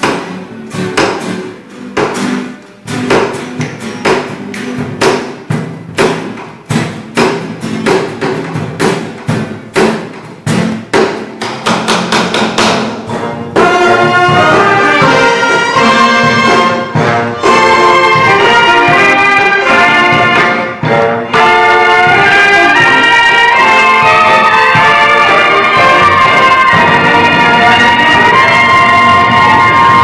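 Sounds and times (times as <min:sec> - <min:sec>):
quick repeated struck notes: 0:00.0 - 0:30.0
recorders and trumpets playing: 0:13.1 - 0:30.0.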